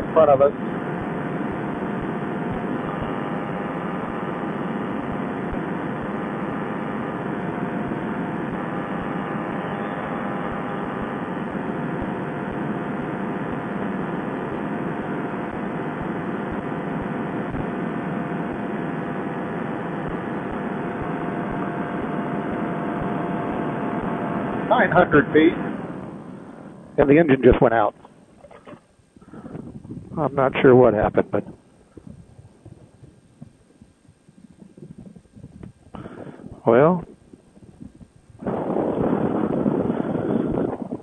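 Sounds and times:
paramotor engine and propeller: 0.0 - 33.8, 34.5 - 41.0
wind noise: 28.4 - 41.0.

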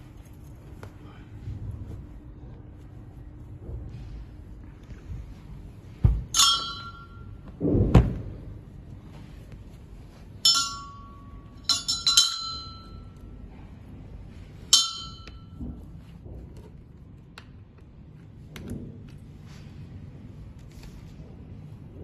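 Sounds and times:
metal chair parts clinking: 6.3 - 7.5, 10.4 - 13.3, 14.7 - 15.8.

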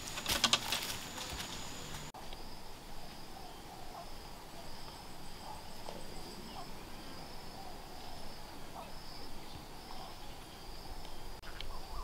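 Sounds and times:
insects trilling: 0.0 - 12.0.

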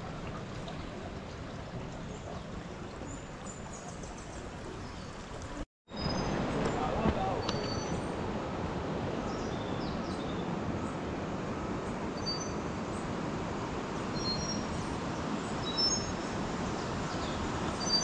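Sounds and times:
birds chirping: 0.6 - 8.0.

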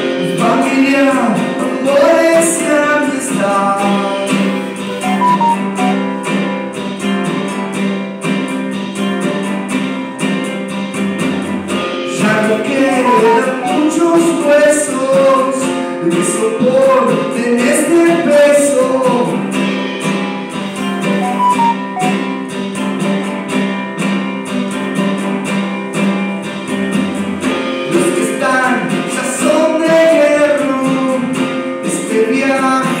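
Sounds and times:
man singing into a microphone: 0.0 - 5.2, 12.1 - 19.6, 27.9 - 33.0
acoustic guitar strumming: 0.0 - 33.0.

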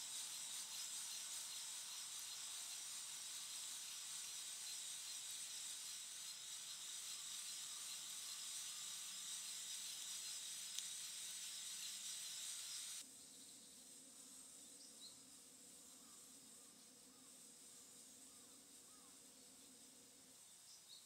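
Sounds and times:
campfire hissing: 0.0 - 13.1
insect buzz: 0.0 - 21.0.

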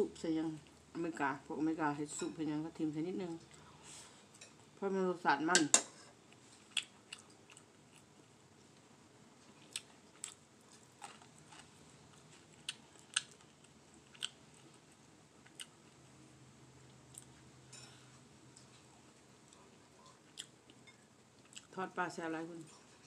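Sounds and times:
chewing: 6.3 - 8.1, 9.4 - 16.0, 16.9 - 17.9, 18.6 - 21.7.

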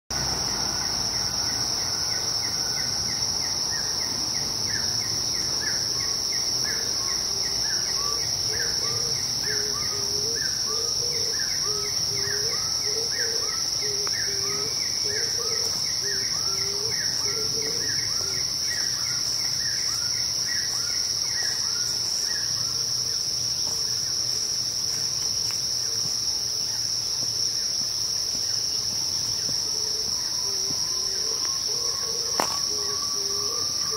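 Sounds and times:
insects droning: 0.1 - 33.9.

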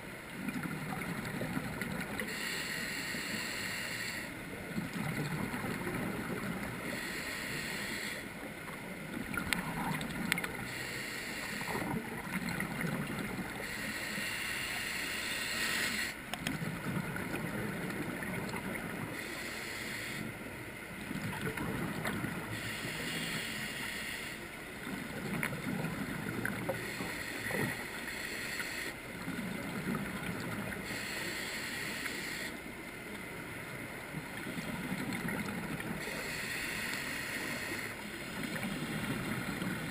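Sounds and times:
regulator hissing inhale: 2.2 - 4.4, 6.8 - 8.3, 10.7 - 12.0, 13.6 - 16.2, 19.1 - 20.4, 22.5 - 24.5, 26.7 - 29.0, 30.8 - 32.6, 36.0 - 38.0.

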